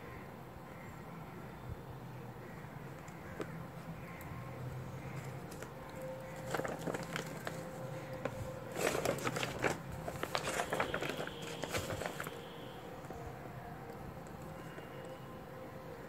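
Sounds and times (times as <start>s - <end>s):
paper calendar pages rustling: 5.1s - 13.2s.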